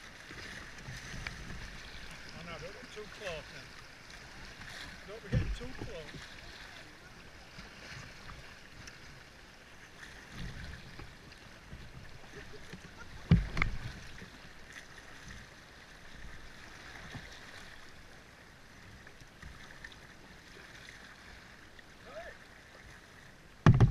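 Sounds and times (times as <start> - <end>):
river water rushing around a hull: 0.0 - 23.9
sharp knocks: 23.6 - 23.9.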